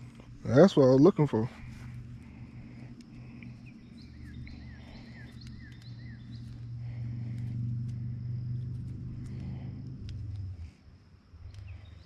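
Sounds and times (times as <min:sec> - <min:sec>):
songbird chirping: 0:00.0 - 0:12.0
steady low drone: 0:00.0 - 0:12.0
faint clicks: 0:02.8 - 0:03.7, 0:04.3 - 0:10.8, 0:11.4 - 0:12.0.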